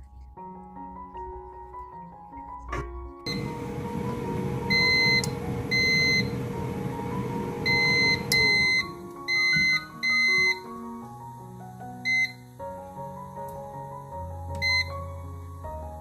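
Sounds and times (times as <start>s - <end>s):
soft background music: 0.0s - 16.0s
rushing noise with hum: 3.3s - 8.6s
short high beeps: 7.6s - 10.6s.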